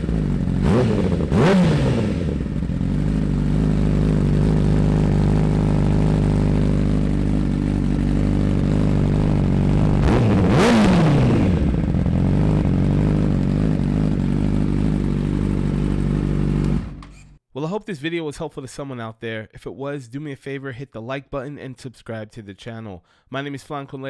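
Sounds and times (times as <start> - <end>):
motorcycle engine idling: 0.0 - 1.4, 2.0 - 17.2
engine revving: 0.0 - 17.0.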